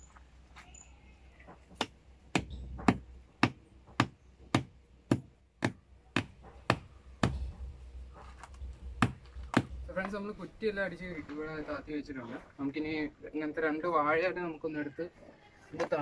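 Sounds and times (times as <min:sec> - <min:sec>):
hammer striking a wooden stake: 0:01.7 - 0:07.6, 0:09.0 - 0:09.8.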